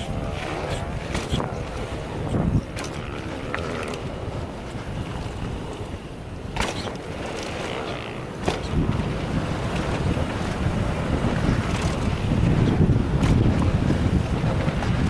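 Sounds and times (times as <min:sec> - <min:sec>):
wind rushing over microphone: 0:00.0 - 0:15.0
bike knocks and rattles: 0:01.1 - 0:01.6, 0:06.6 - 0:07.0, 0:07.6 - 0:08.9, 0:12.6 - 0:13.7.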